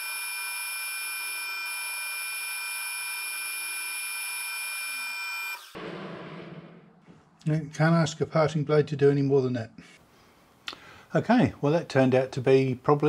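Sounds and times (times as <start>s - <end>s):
metal lathe high-pitched whine: 0.0s - 5.8s.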